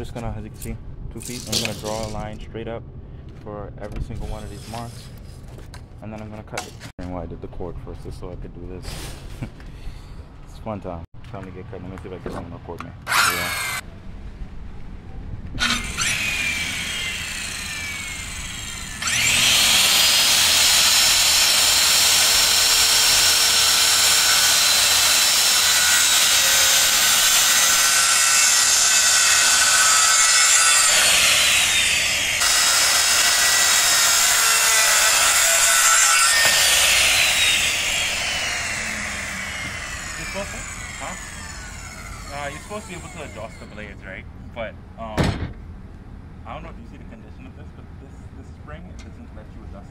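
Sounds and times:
circular saw cutting wood: 1.3s - 2.2s, 13.1s - 13.8s, 15.6s - 44.1s.

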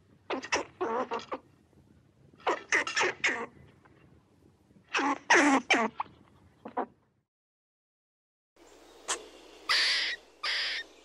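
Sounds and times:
squirrel calling: 9.0s - 11.0s.

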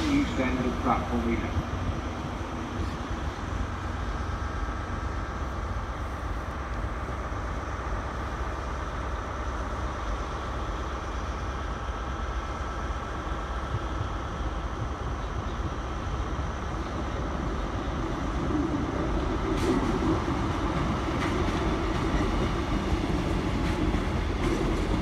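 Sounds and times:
diesel train rumbling: 0.0s - 25.0s.

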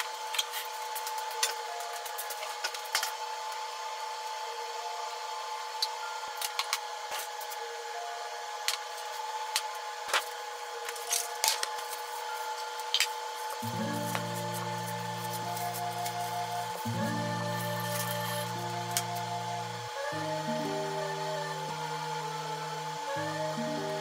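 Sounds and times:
plastic wrap rustling: 10.1s - 19.3s.

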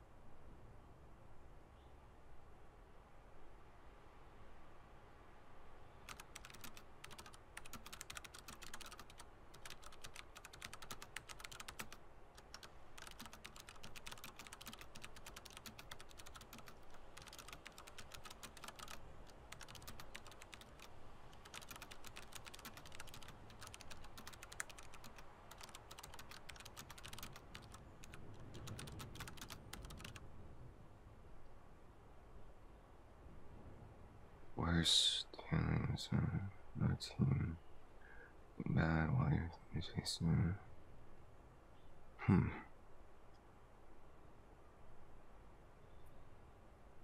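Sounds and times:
typing on computer keyboard: 6.1s - 30.2s.

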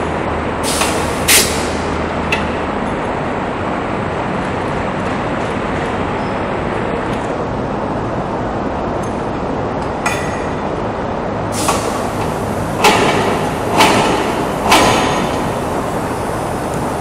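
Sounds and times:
workshop machinery noise: 0.0s - 6.1s, 11.5s - 17.0s.

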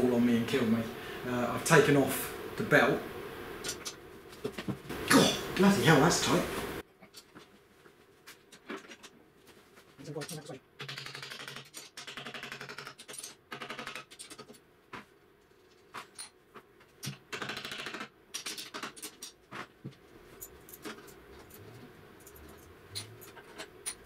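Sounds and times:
rapid even clicking of tools: 10.1s - 14.6s, 15.6s - 19.8s
tools knocking and tapping metal: 22.3s - 24.0s.

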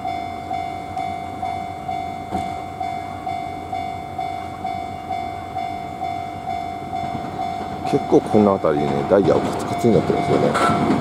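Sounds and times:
level crossing electronic bell: 9.7s - 10.7s.

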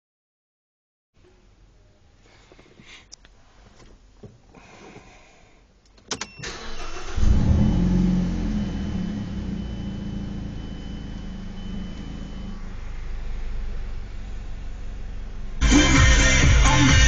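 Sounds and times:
engine cranking: 6.4s - 7.5s
car engine revving then idling: 6.7s - 17.0s.

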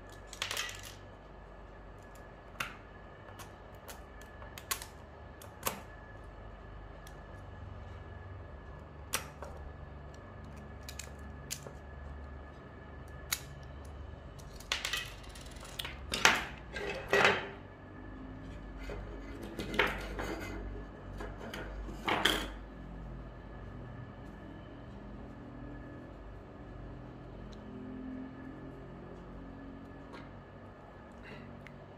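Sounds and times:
small hard parts clattering: 0.2s - 1.1s.

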